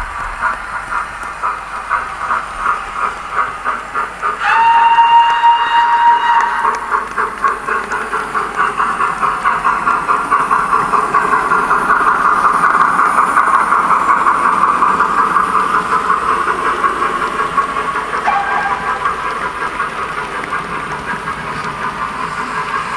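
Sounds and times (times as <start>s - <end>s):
steam locomotive chuffing: 0.0s - 22.9s
steam whistle: 4.4s - 6.9s, 18.2s - 19.0s.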